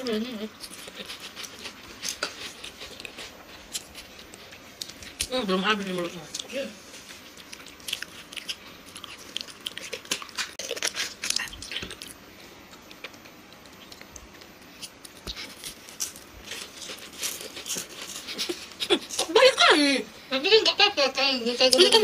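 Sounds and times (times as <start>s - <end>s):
chewing and mouth smacking: 7.3s - 12.2s, 12.9s - 19.3s.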